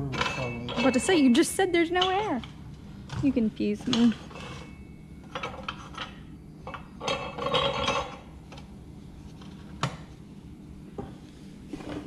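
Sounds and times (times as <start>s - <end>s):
metal tools clinking on wheel: 0.0s - 2.4s, 3.7s - 8.3s.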